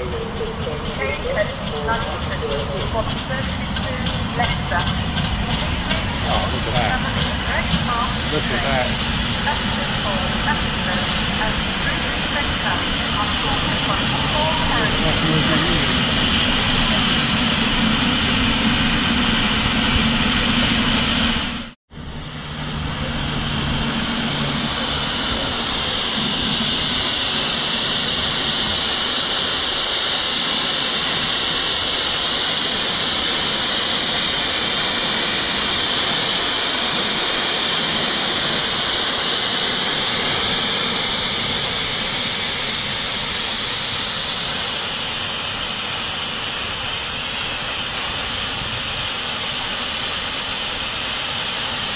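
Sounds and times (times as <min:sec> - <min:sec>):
steam locomotive hissing steam: 0:00.0 - 0:51.9.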